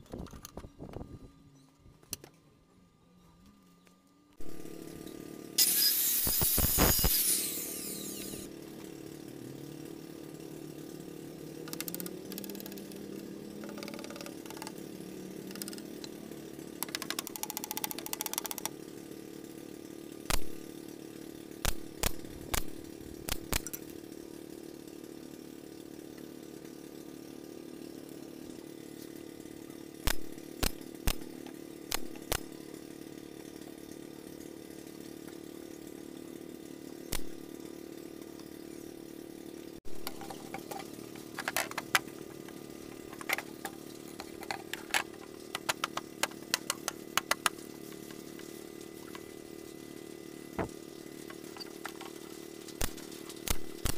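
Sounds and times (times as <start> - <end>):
low hum: 0.0 - 23.9
cordless drill running: 4.4 - 24.4, 30.0 - 33.5
rapid clicks: 11.6 - 16.2, 16.8 - 18.8, 30.0 - 32.6, 51.3 - 53.9.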